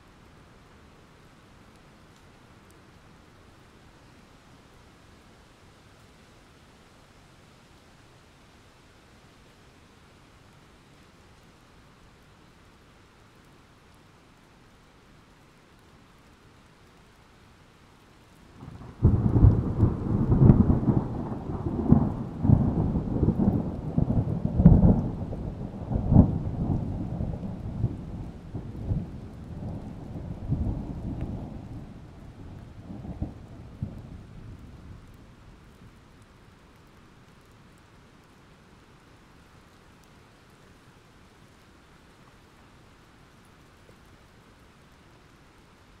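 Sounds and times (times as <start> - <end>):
rain hiss: 0.0 - 46.0
thunder rumbling: 18.6 - 35.4.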